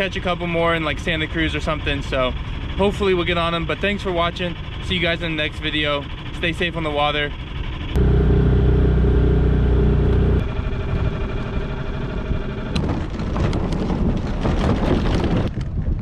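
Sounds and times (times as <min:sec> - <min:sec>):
outboard motor running: 0:00.0 - 0:14.2
boat wheels rolling and scraping: 0:12.2 - 0:15.7.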